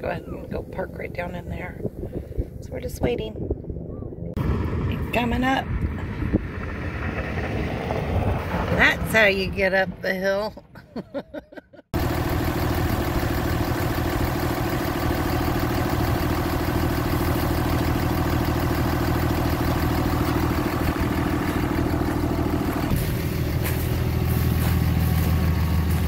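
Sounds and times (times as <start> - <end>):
diesel engine idling: 11.9 - 26.0.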